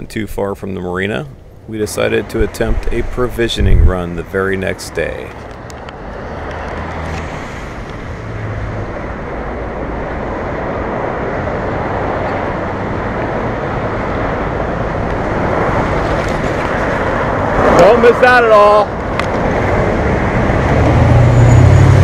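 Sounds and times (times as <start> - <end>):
freeway traffic: 0.0 - 22.0.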